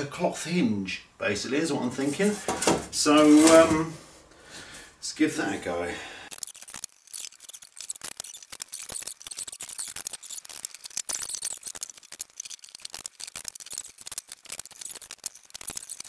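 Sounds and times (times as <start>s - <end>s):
duct tape tearing: 6.3s - 16.0s.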